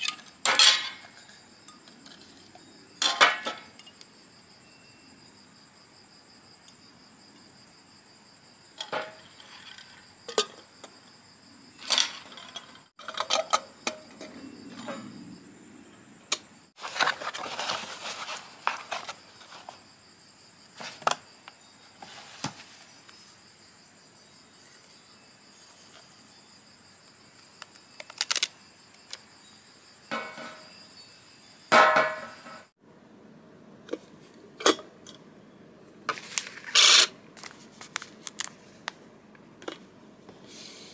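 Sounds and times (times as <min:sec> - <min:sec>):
faint steady high tone: 0:04.6 - 0:05.2
packaging rustling: 0:16.8 - 0:19.6.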